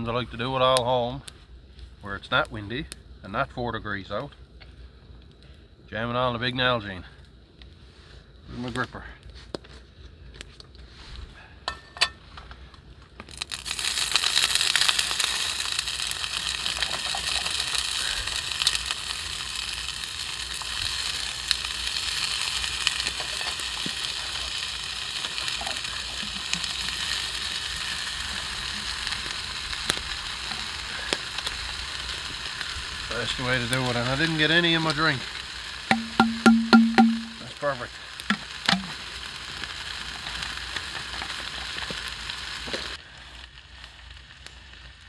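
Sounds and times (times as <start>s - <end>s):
food sizzling in a frying pan: 13.2s - 45.0s.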